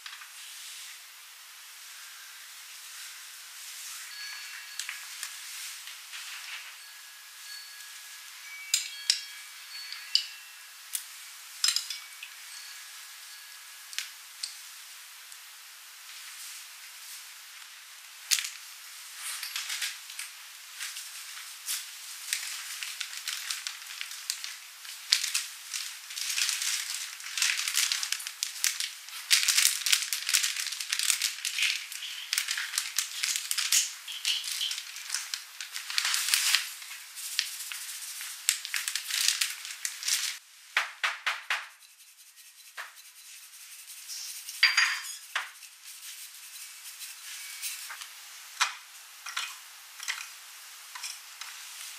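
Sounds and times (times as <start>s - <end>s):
spice packet rustling: 1.8s - 6.9s, 16.0s - 40.4s, 41.6s - 48.2s
pepper shaker shaking: 1.8s - 40.4s, 41.2s - 48.3s.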